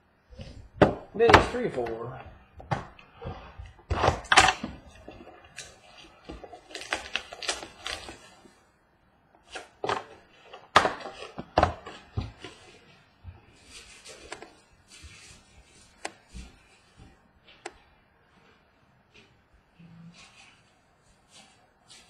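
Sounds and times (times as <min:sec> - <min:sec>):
cardboard rustling: 0:00.4 - 0:08.6, 0:09.4 - 0:17.7.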